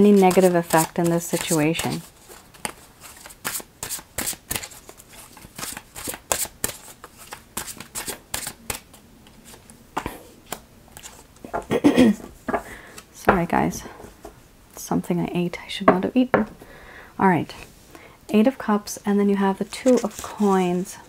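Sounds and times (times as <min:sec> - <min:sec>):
cards being shuffled: 0:00.0 - 0:11.6, 0:19.7 - 0:20.9.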